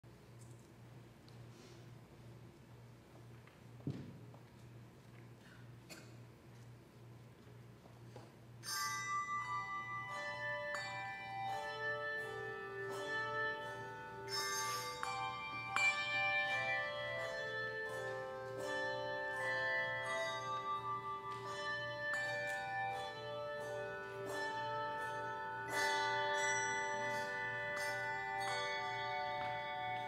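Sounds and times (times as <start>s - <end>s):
handbell choir playing a hymn: 8.6s - 30.0s.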